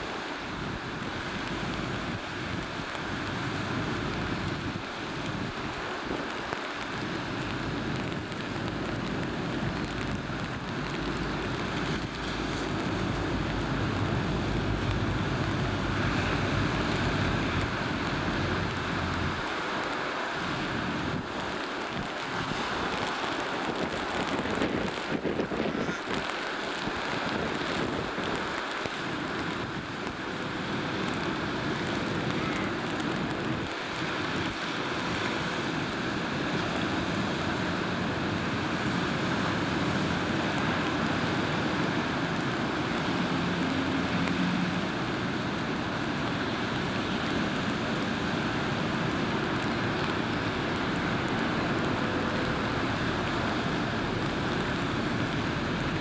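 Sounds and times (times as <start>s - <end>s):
sea water rushing: 0.0s - 56.0s
wind buffeting microphone: 20.6s - 43.9s.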